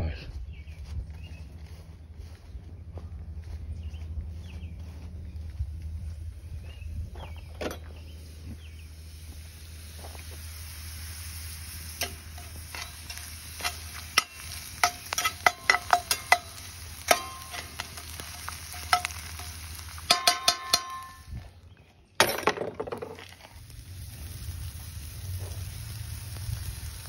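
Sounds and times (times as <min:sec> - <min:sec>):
fries sizzling in oil: 0:07.8 - 0:21.5, 0:23.2 - 0:27.0
spatula scraping skillet: 0:11.6 - 0:21.1.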